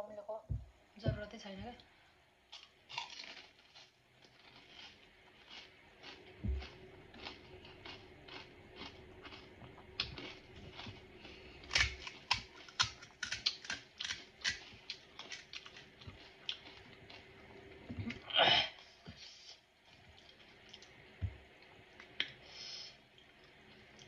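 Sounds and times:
crunchy shells cracking: 2.5s - 17.3s
chewing: 2.6s - 18.3s, 19.8s - 22.4s.

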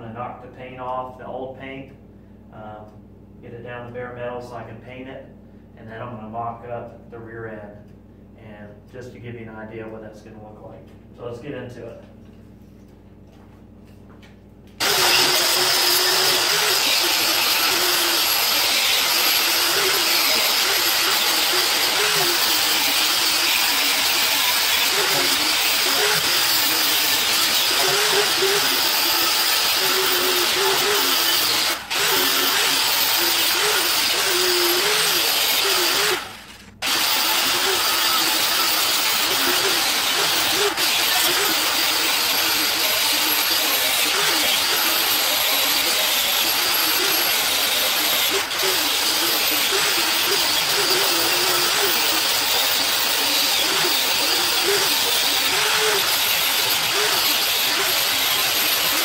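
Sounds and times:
power tool grinding metal: 14.8s - 59.0s.

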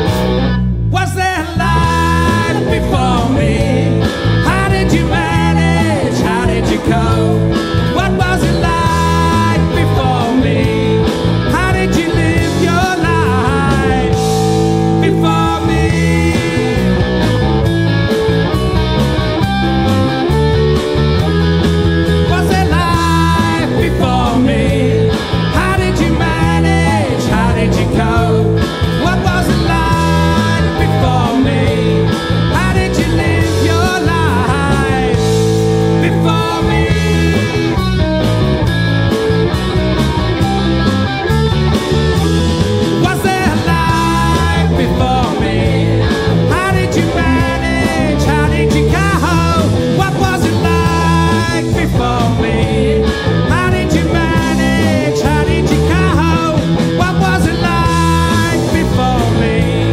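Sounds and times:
distorted electric guitar: 0.0s - 59.9s
drums: 0.0s - 59.9s
man singing lead vocals: 0.8s - 18.2s, 19.8s - 38.6s, 41.1s - 59.9s
second voice singing: 0.9s - 17.1s, 22.3s - 38.0s, 42.9s - 59.9s.

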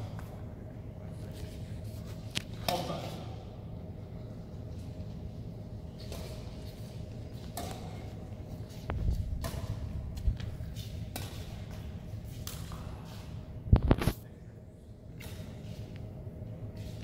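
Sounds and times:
shuttlecock hit by rackets: 7.5s - 8.0s, 9.4s - 10.0s, 11.1s - 13.0s.

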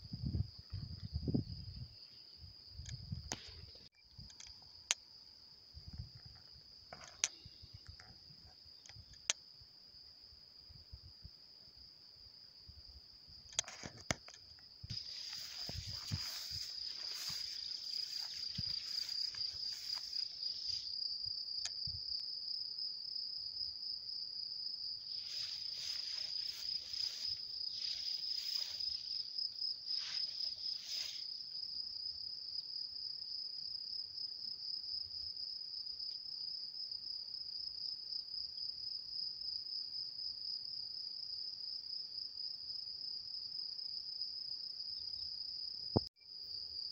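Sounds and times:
insects chirring: 0.0s - 46.9s
rustling: 14.9s - 21.0s, 25.1s - 31.3s.

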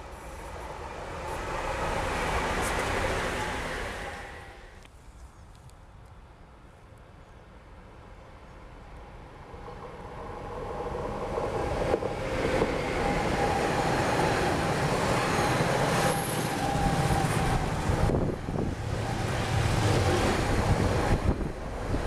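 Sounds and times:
freight train rumbling past: 0.0s - 4.8s, 8.3s - 22.0s.

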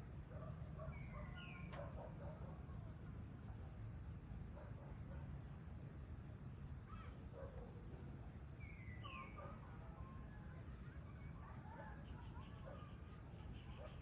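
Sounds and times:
bird chirps: 0.8s - 1.8s, 8.6s - 9.5s.

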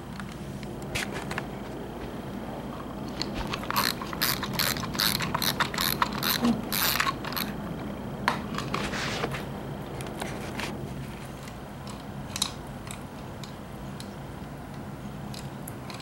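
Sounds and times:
treats rattling in plastic ball: 3.0s - 7.6s.

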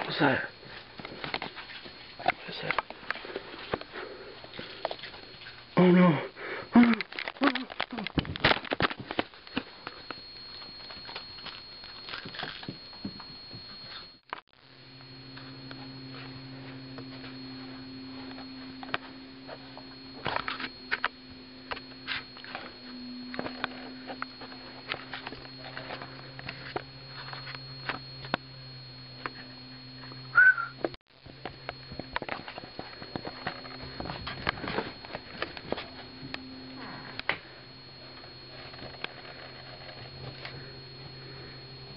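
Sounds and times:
steady electrical hum: 0.0s - 41.9s
short high squeak: 30.3s - 30.8s.

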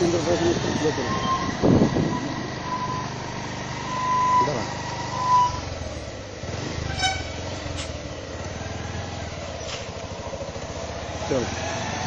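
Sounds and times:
vehicle engine running: 0.0s - 12.0s
horn toot: 6.8s - 7.9s.

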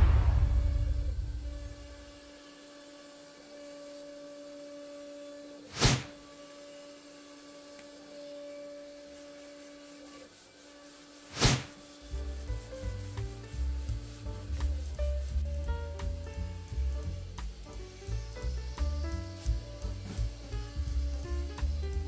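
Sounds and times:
short whooshes: 0.0s - 2.1s, 5.7s - 6.1s, 11.3s - 11.7s.

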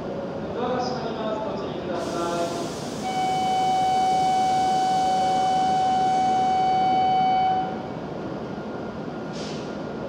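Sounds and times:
electronic warning buzzer: 3.0s - 7.8s.

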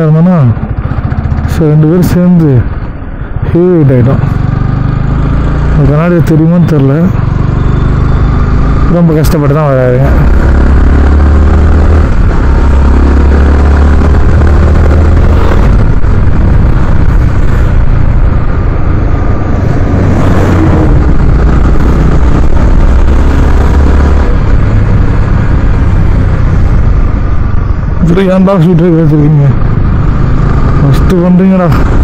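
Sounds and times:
motorcycle engine cruising: 0.0s - 32.0s
wind rushing over microphone: 10.1s - 32.0s.

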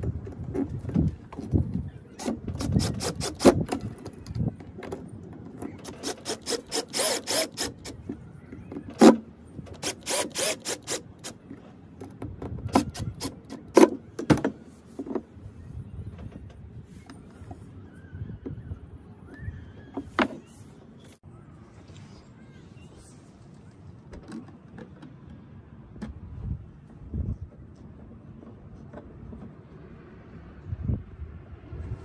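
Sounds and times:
drill driving screws clicking: 2.2s - 3.8s, 5.8s - 8.0s, 9.8s - 11.4s, 12.7s - 13.6s.

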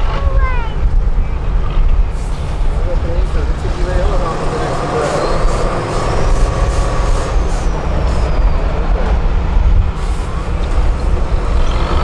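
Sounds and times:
heavy diesel engine rumble: 0.0s - 12.0s.

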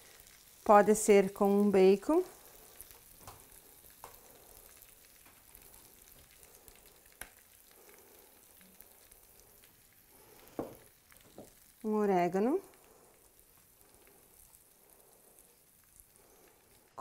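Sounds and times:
bread sizzling on hot tray: 0.0s - 17.0s
light ticks of falling bacon: 2.3s - 11.9s.

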